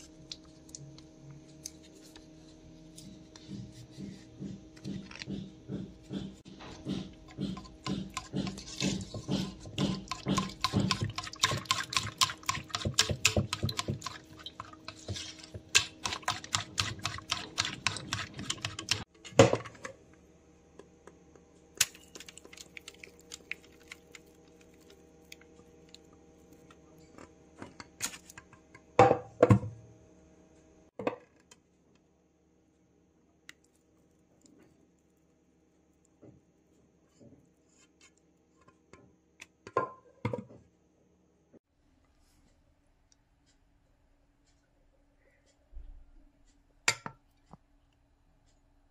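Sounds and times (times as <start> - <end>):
whisk beating mixture in bowl: 6.3 - 19.1, 22.1 - 25.4.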